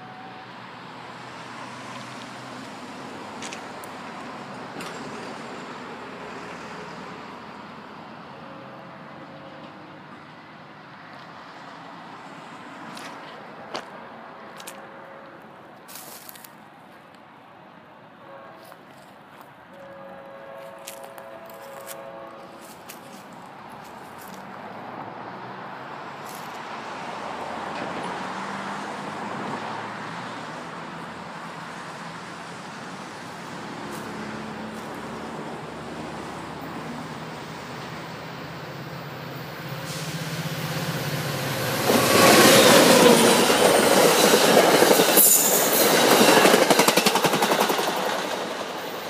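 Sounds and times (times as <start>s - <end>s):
train rail noise: 0.0s - 49.0s
high-pitched wheel squeal: 45.0s - 46.4s.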